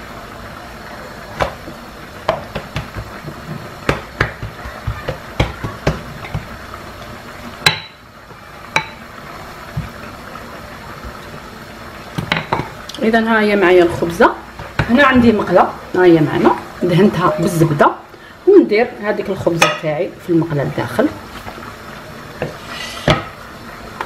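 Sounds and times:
rolling pin knocking on counter: 1.4s - 6.6s
rolling pin rolling dough: 1.4s - 7.0s.

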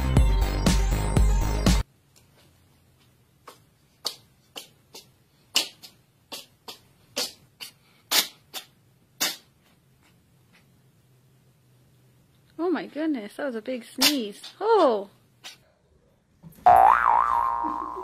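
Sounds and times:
background music: 0.0s - 1.8s
cat sneezing and snorting: 7.2s - 9.5s.

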